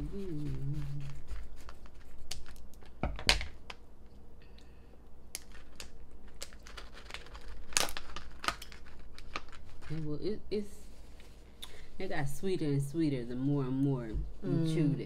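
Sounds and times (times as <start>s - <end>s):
plastic pouch crinkling: 5.4s - 10.0s.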